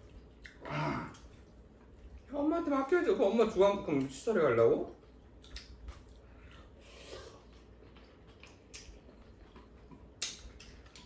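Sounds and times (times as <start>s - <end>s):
people chewing noodles: 0.0s - 2.3s, 4.8s - 11.0s
chopsticks clicking against bowls: 10.2s - 11.0s.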